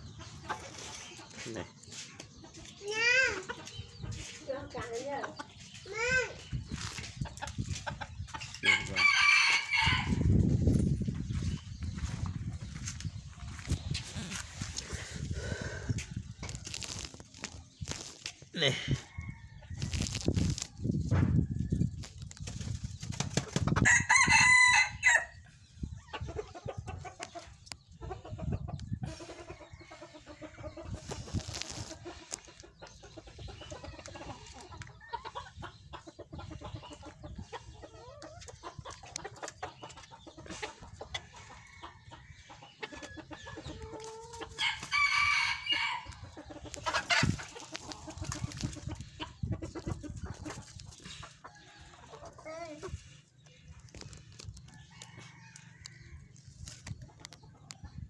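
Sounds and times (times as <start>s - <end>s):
hens clucking: 0.0s - 21.4s, 25.8s - 44.8s, 45.4s - 58.0s
rooster crowing: 8.6s - 10.2s, 44.6s - 46.1s.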